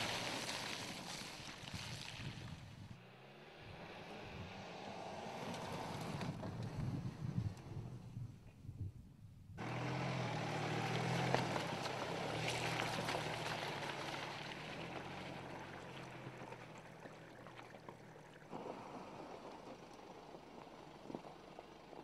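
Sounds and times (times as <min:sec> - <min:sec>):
water splashing: 0:00.0 - 0:02.7, 0:10.4 - 0:21.3
stones under tyres: 0:00.0 - 0:02.9, 0:09.6 - 0:22.0
car engine hum: 0:02.7 - 0:22.0.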